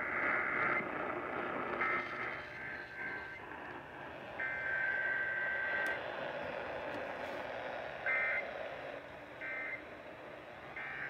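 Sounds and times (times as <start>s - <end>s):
digital data tones over radio: 0.0s - 3.8s, 4.4s - 6.0s, 8.1s - 8.5s, 9.4s - 9.9s, 10.7s - 11.0s
radio static hiss: 0.0s - 11.0s.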